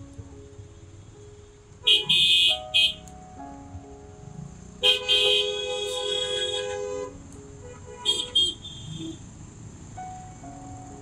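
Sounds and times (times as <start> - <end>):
faint background music: 0.0 - 11.0
vehicle horn honking: 1.8 - 3.0, 4.8 - 9.2.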